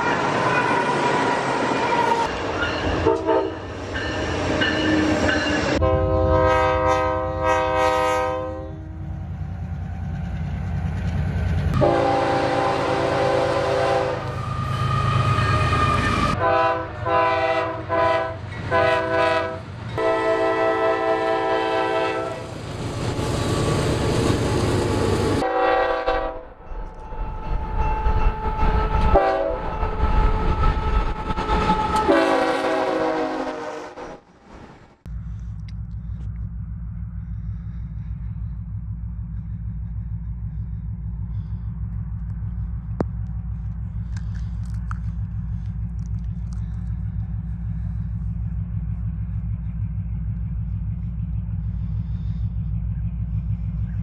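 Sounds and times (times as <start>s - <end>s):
train rumble and rail clatter: 0.0s - 54.0s
locomotive air horns: 2.9s - 3.7s, 5.8s - 9.1s, 11.7s - 22.5s, 25.4s - 26.5s, 28.4s - 34.2s.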